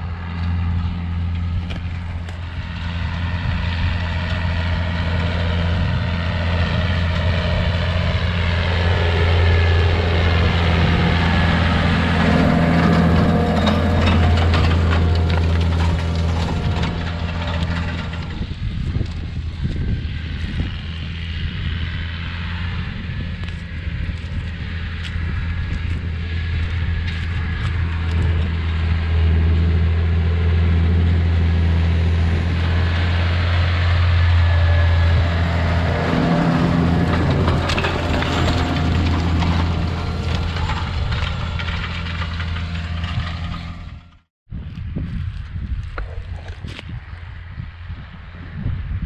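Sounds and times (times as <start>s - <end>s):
tractor diesel engine running: 0.0s - 44.3s
clicks and rattles: 12.3s - 19.2s, 37.0s - 44.2s.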